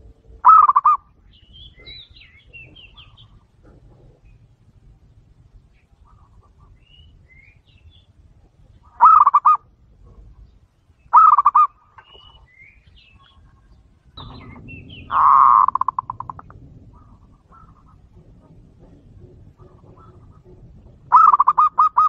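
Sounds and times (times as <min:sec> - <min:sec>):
dove cooing: 0:00.0 - 0:01.1, 0:08.8 - 0:10.4, 0:11.1 - 0:12.4, 0:13.1 - 0:22.0
small birds chirping: 0:00.2 - 0:22.0.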